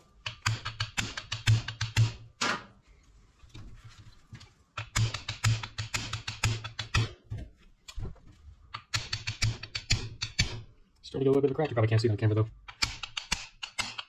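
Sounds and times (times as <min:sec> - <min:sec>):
small hammer tapping metal: 0:00.2 - 0:02.2, 0:04.8 - 0:07.1, 0:08.7 - 0:10.7, 0:12.7 - 0:14.0.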